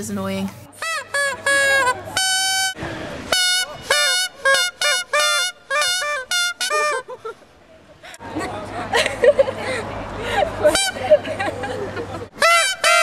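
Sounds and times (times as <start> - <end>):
squeaky plastic horn toots: 0.8 - 7.0, 12.4 - 13.0.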